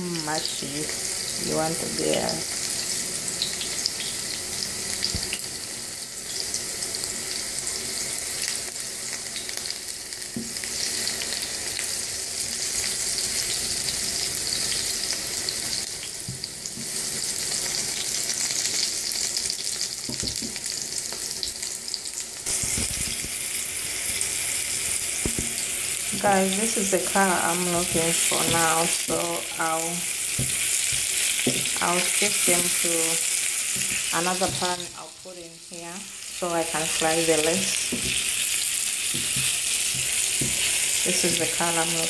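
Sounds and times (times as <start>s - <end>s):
eggplant sizzling in hot oil: 0.0s - 42.0s
spatula scraping and tapping pan: 33.7s - 34.8s, 39.1s - 41.0s.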